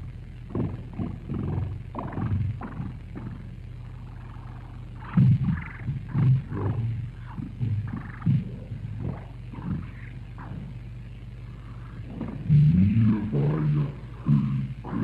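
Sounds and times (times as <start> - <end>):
steady low hum: 0.0 - 15.0
muffled voice fragments: 5.0 - 10.8, 11.5 - 15.0.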